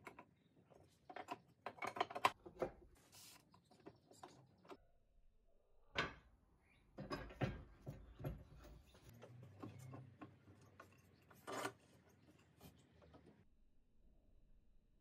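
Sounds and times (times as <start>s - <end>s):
metal and wood knocks and clicks: 1.1s - 2.8s, 7.0s - 11.7s
clamp scraping: 8.6s - 13.2s.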